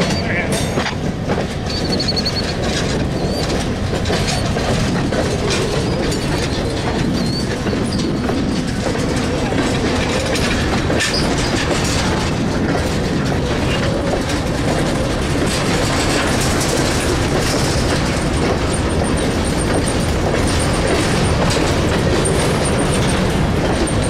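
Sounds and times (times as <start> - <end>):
freight train wheels rattling on rails: 0.0 - 24.0.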